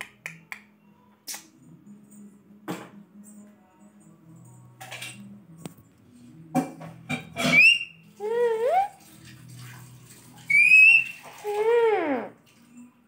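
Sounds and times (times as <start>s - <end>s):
parakeet whistling: 7.4s - 8.9s, 10.5s - 12.3s.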